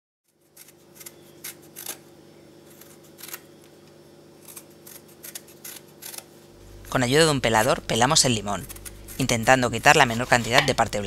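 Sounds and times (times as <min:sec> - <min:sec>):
peeler scraping lemon peel: 0:00.3 - 0:02.0, 0:02.7 - 0:03.5, 0:04.4 - 0:06.3, 0:07.4 - 0:10.8
faint steady hum: 0:00.3 - 0:11.0.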